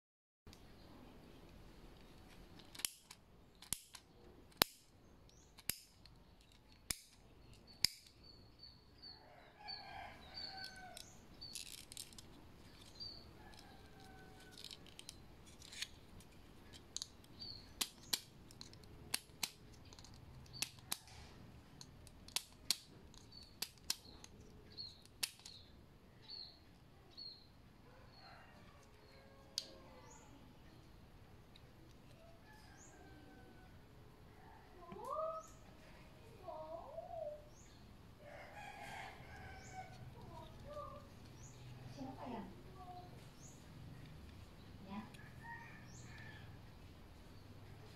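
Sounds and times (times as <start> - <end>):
bicycle thumb shifter clicking: 2.6 - 8.2.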